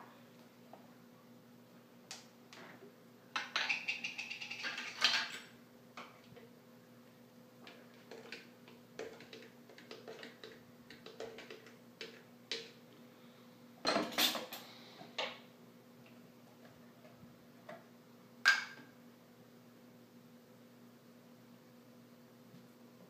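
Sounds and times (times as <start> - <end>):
kitchen things clattering on counter: 3.4 - 5.5, 13.9 - 14.7.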